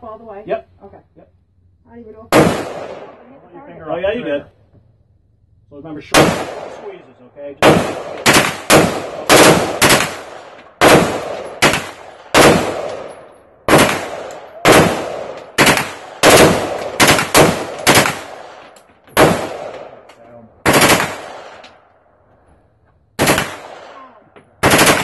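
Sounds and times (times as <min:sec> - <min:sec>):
machine gun shots echoing: 0:02.3 - 0:03.3, 0:06.0 - 0:07.0, 0:07.6 - 0:18.6, 0:19.2 - 0:20.0, 0:20.6 - 0:21.6, 0:23.2 - 0:25.0.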